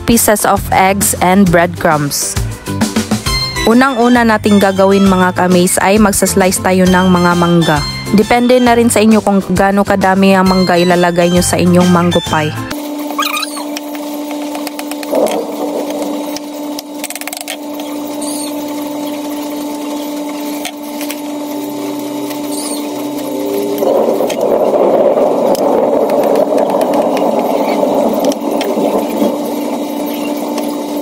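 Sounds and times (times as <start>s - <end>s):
motor humming: 12.6s - 31.0s.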